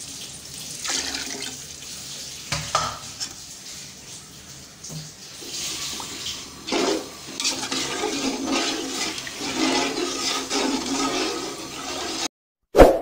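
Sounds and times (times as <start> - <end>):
stock boiling in a pot: 0.0 - 1.9, 5.2 - 12.3
spoon stirring: 5.9 - 12.3.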